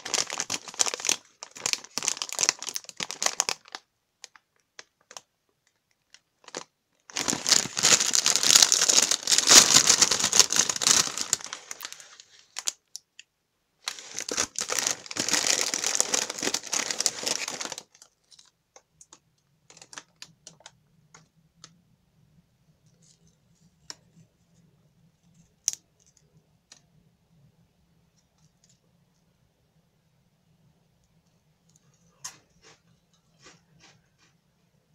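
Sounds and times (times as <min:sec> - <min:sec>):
plastic snack bag crinkling: 0:00.0 - 0:13.1, 0:13.8 - 0:21.7.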